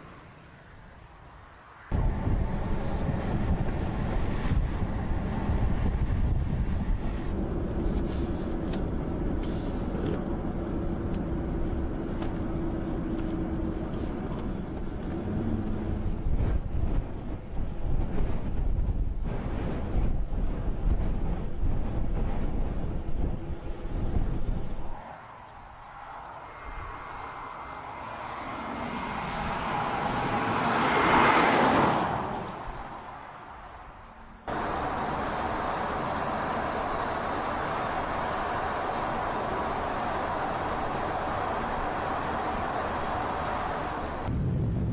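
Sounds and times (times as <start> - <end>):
car engine drone: 1.8 - 18.2, 21.6 - 44.9
tyre and wind noise: 1.9 - 44.9
car driving past: 24.9 - 33.0.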